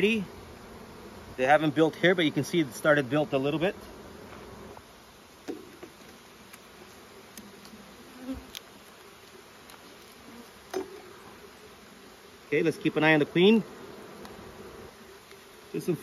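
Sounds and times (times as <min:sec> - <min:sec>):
honeybees buzzing: 0:00.0 - 0:16.0
hive tool clicking on wooden frames: 0:14.2 - 0:14.5.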